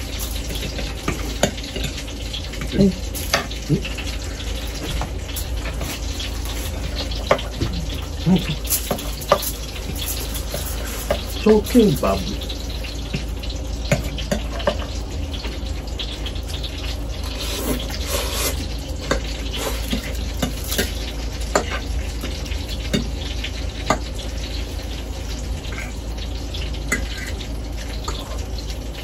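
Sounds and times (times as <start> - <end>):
chewing and slurping: 0.0 - 11.5, 16.4 - 22.4
low steady hum: 0.0 - 29.0
forks scraping on a plate: 5.4 - 11.4.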